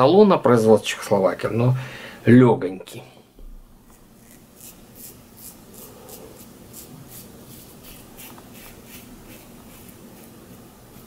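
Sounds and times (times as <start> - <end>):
razor scraping stubble: 3.8 - 11.0.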